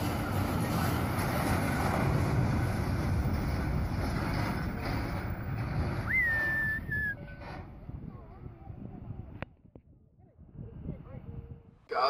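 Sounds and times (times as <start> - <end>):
heavy lorry rumble: 0.0 - 9.3
wind buffeting microphone: 0.0 - 11.9
person whistling: 6.1 - 7.2.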